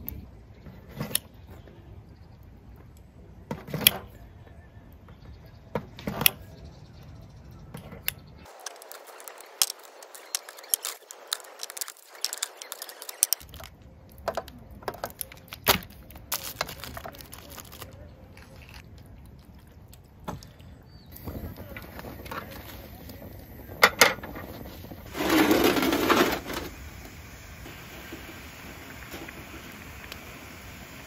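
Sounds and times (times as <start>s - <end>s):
plastic packaging crinkling: 8.5s - 13.8s, 15.0s - 18.8s.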